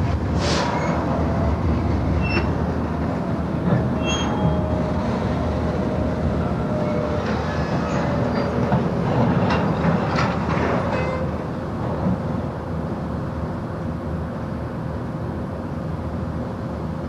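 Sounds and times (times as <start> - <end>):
steel wheels rolling on rail: 0.0 - 13.8
diesel locomotive engine rumble: 0.0 - 17.0
high wheel squeals: 2.2 - 2.6, 3.9 - 5.2.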